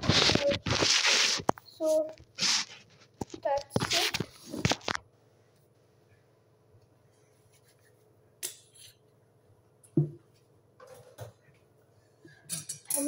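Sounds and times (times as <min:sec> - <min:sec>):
hands rubbing together: 0:00.0 - 0:02.9.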